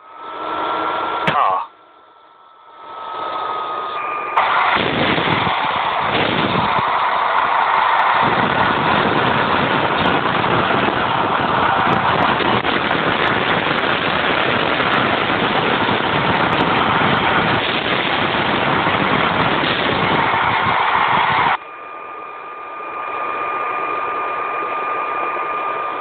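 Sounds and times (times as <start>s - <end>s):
vehicle engine running: 2.9s - 21.6s
deep rumble: 4.4s - 21.6s.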